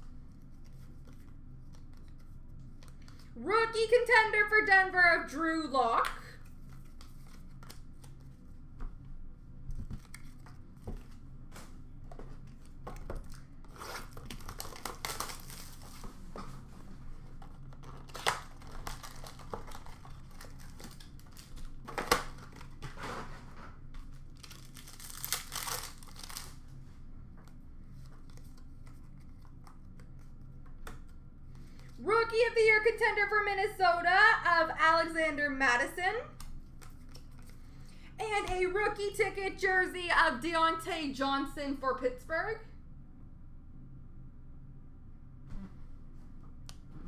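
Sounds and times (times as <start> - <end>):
cards clicking and shuffling: 0.3 - 3.4, 6.0 - 9.0, 9.7 - 16.6, 17.4 - 23.0, 24.0 - 26.6, 27.4 - 32.0, 36.4 - 37.6
packaging tearing and crinkling: 13.2 - 16.1, 17.7 - 23.2, 24.0 - 26.6.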